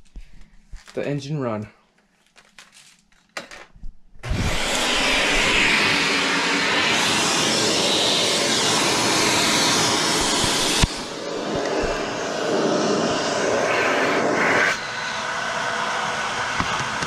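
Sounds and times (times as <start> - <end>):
electric blower rushing air: 4.2 - 17.0.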